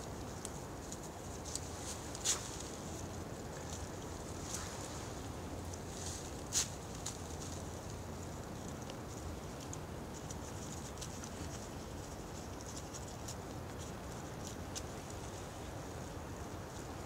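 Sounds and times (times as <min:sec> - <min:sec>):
faint ticks and patters: 0:00.0 - 0:17.0
steady low hiss: 0:00.0 - 0:17.0.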